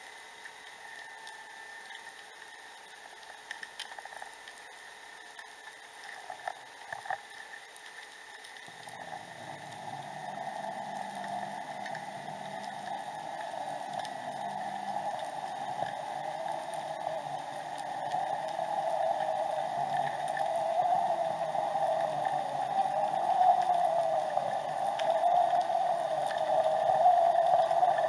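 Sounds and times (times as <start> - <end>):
sharp clicks and crackles: 0.1 - 28.0
low hum: 8.6 - 28.0
underwater watery hiss: 8.8 - 28.0.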